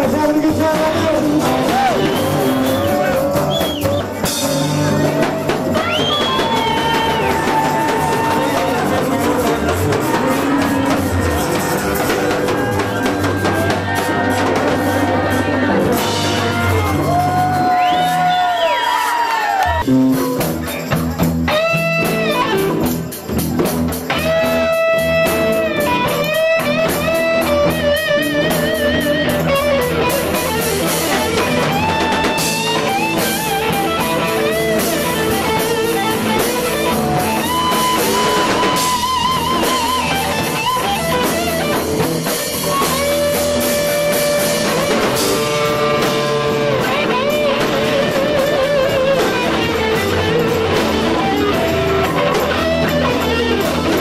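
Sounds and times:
electric guitar lead lines: 0.0 - 18.6, 19.7 - 54.0
drum kit beat: 0.0 - 54.0.

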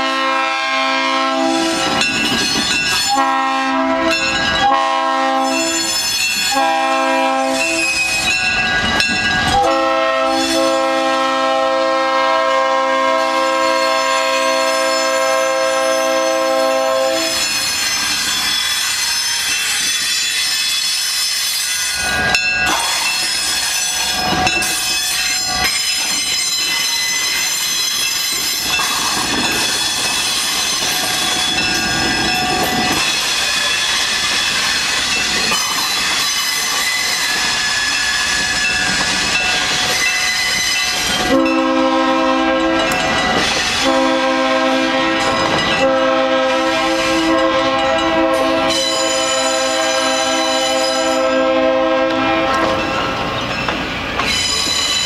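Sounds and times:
locomotive horn blowing: 0.0 - 2.0, 3.1 - 8.0, 9.6 - 17.4, 41.2 - 43.0, 43.8 - 52.9
train wheels squealing and clacking: 1.4 - 11.0, 13.3 - 55.0.

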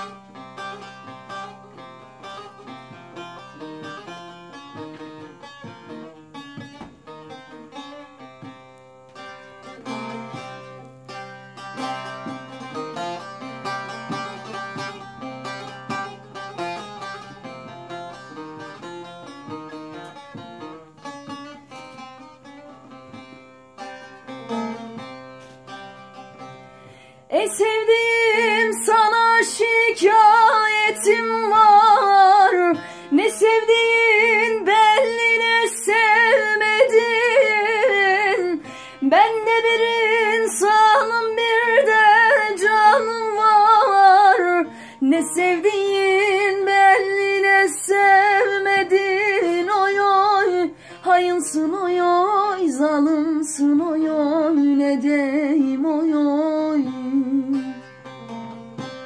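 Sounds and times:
plucked string instrumental: 0.0 - 59.0
woman singing: 27.3 - 57.8.

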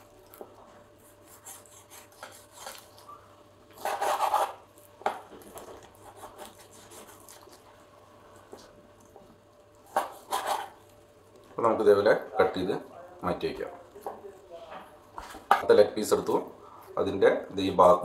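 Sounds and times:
knife scraping meat on wooden board: 0.9 - 3.1, 3.7 - 4.7, 5.4 - 7.6, 9.9 - 10.8.

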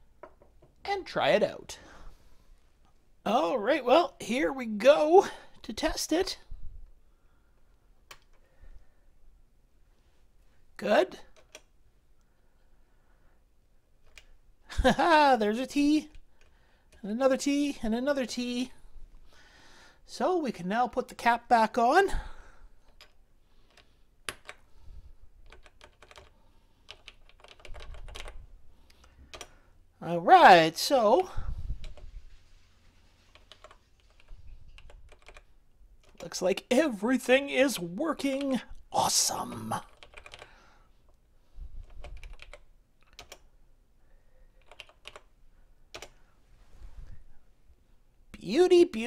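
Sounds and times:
computer keyboard key clicks: 26.9 - 28.4, 33.4 - 35.4, 41.9 - 43.4, 44.6 - 45.3.

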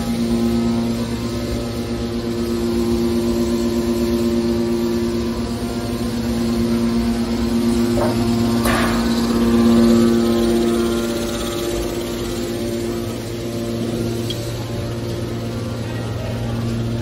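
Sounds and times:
hydraulic pump drone with whine: 0.0 - 17.0.

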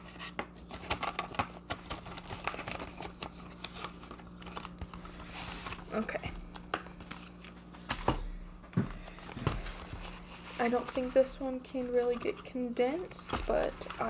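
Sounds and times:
plastic and paper crinkling: 0.0 - 14.0.

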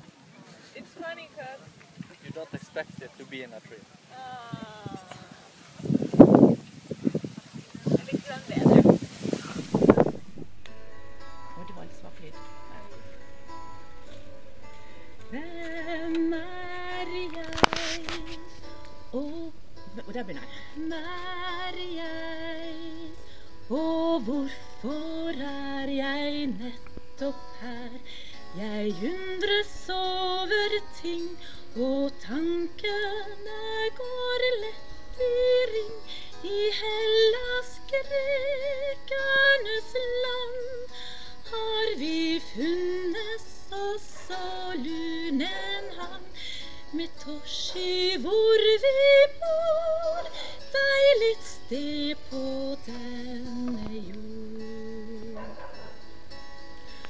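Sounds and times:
woman singing with vibrato: 12.3 - 55.6.

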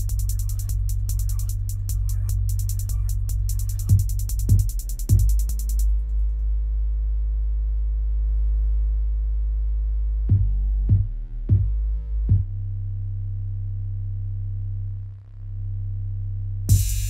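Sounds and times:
deep drum beat: 0.0 - 6.0, 10.3 - 12.6, 16.7 - 17.0.

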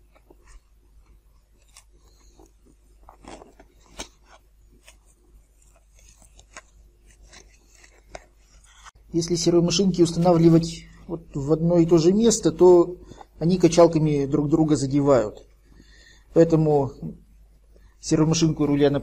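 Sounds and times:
knife cutting foam: 0.0 - 9.0.

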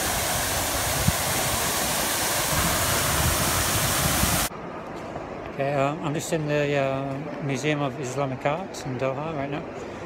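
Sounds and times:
fountain water splashing: 0.0 - 4.5.

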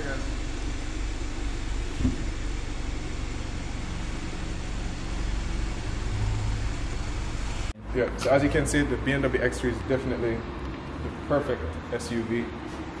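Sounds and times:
machinery humming and hissing: 0.0 - 7.8
brief low thump: 1.9 - 2.5.

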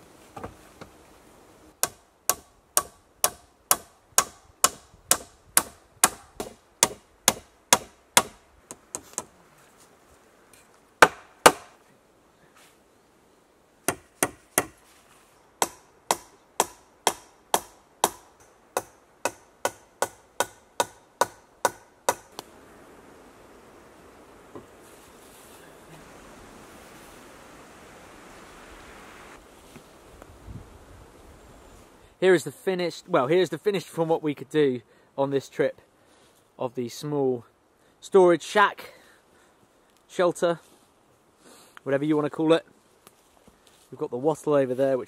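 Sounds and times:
hammer blows on wooden rafters: 1.8 - 9.3, 11.0 - 11.8, 13.8 - 14.9, 15.6 - 22.4.

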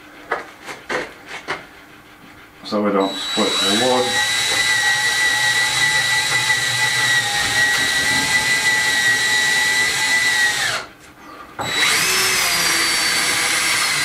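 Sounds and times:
cordless drill whining: 3.0 - 10.9, 11.6 - 14.0.

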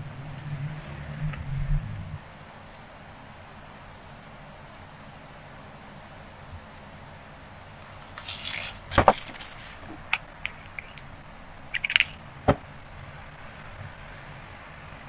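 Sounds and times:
utensil scraping: 7.8 - 11.1.

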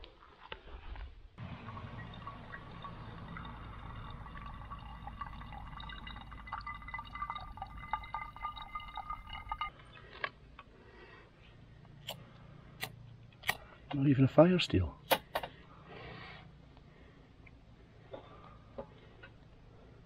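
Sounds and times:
water dripping through filter: 1.4 - 9.9.

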